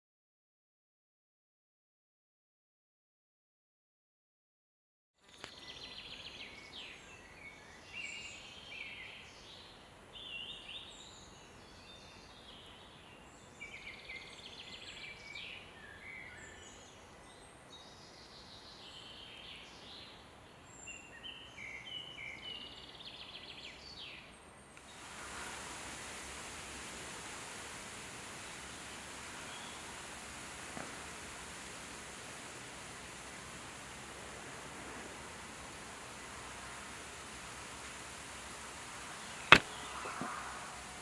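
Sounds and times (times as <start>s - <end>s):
small birds singing: 5.2s - 25.1s, 28.3s - 30.1s, 31.0s - 41.0s
faint steady hiss: 5.2s - 41.0s.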